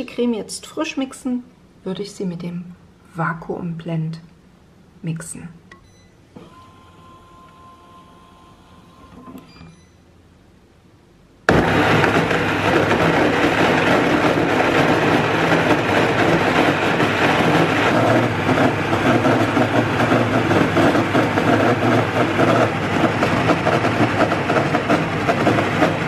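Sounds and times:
blender motor running: 11.5s - 26.0s.

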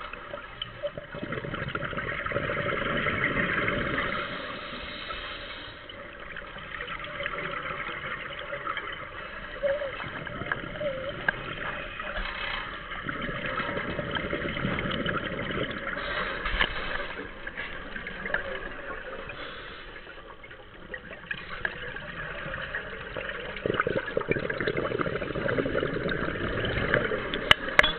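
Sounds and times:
bubbles gurgling underwater: 0.0s - 4.8s, 5.9s - 27.9s
scuba regulator breathing: 4.0s - 6.1s, 13.4s - 18.0s, 19.2s - 20.3s.

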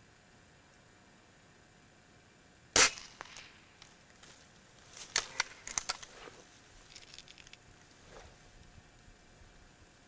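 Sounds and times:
air rifle shot: 2.8s - 3.6s.

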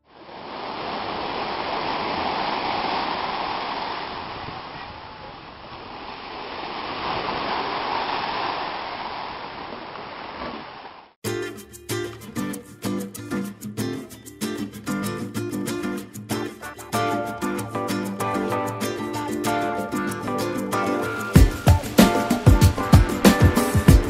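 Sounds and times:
waves washing onto beach: 0.0s - 11.2s
acoustic guitar music: 11.2s - 24.0s.

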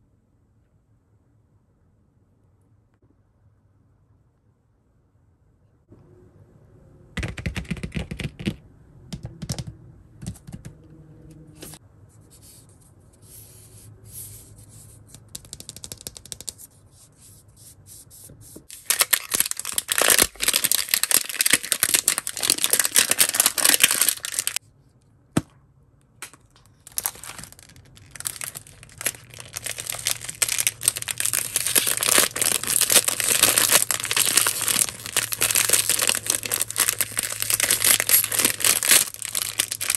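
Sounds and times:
plastic foil packet crinkling: 18.7s - 24.6s, 26.8s - 39.9s
plastic wrap peeling and tearing: 18.7s - 24.6s, 26.8s - 39.9s.

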